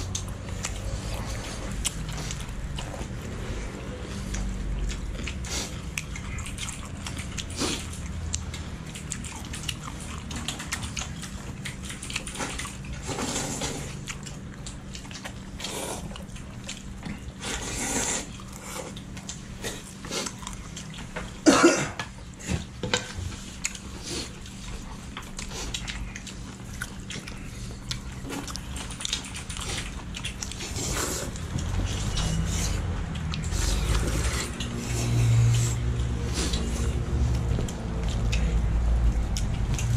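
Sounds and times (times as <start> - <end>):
wet slurping and chewing: 0.0 - 21.4, 22.2 - 39.9
chopsticks clicking against bowls: 33.1 - 34.8.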